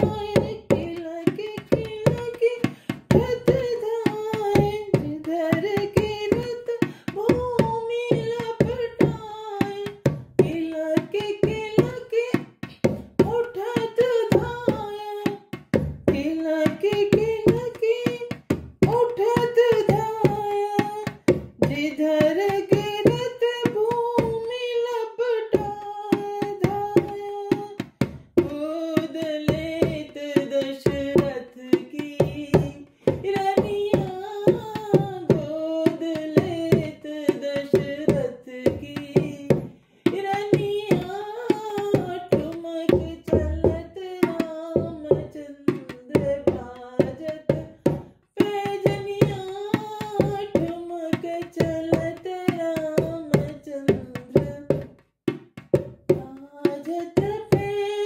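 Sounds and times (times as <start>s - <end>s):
woman singing folk song: 0.0s - 55.0s, 56.0s - 58.0s.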